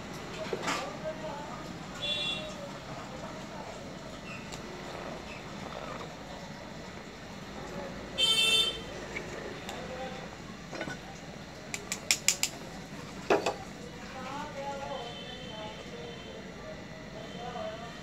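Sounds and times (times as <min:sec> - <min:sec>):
vehicle horn honk: 0:02.0 - 0:02.5, 0:08.2 - 0:08.9
sharp metallic clicks: 0:11.7 - 0:12.6.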